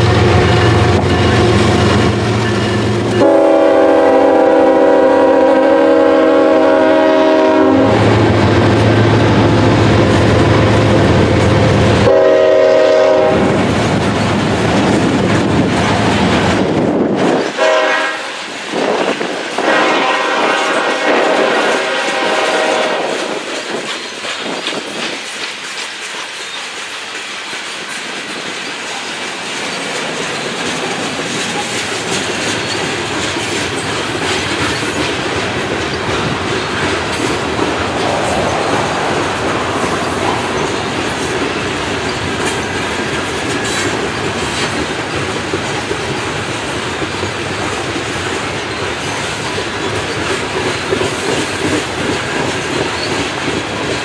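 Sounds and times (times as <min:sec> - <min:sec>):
train cars rumbling and clattering: 0:00.0 - 0:54.0
wheels clicking over rail joints: 0:23.0 - 0:54.0.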